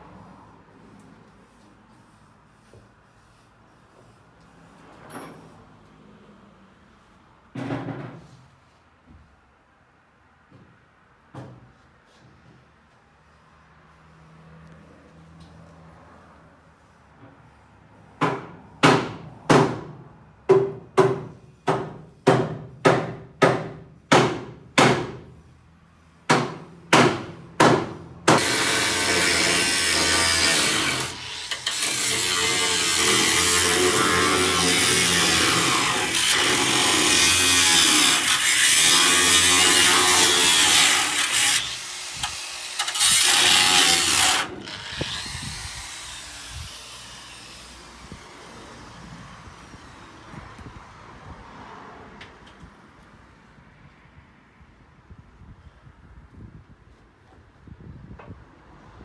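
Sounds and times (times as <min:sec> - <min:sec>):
power tool running: 0:28.4 - 0:50.1.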